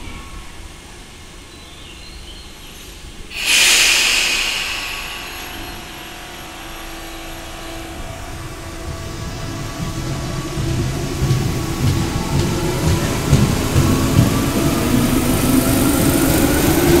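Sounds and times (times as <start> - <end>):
air brake hiss: 3.3 - 9.5
train hum: 3.4 - 17.0.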